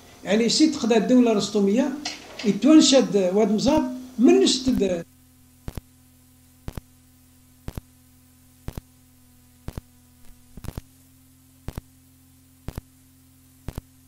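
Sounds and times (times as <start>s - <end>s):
low steady hum: 0.0s - 14.0s
sharp double tick: 5.6s - 5.9s, 6.6s - 6.9s, 7.6s - 7.9s, 8.6s - 8.9s, 9.6s - 9.9s, 11.6s - 11.9s, 12.6s - 12.9s, 13.6s - 13.9s.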